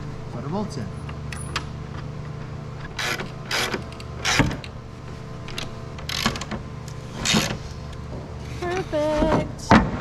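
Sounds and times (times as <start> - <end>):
ratchet wrench creaking: 2.9 - 4.7, 5.5 - 6.5.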